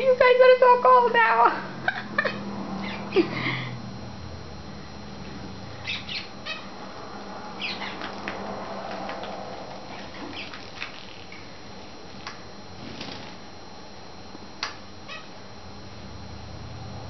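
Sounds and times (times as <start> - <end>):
finches chirping: 2.8 - 3.1, 5.7 - 6.8, 7.6 - 8.3, 9.9 - 11.5.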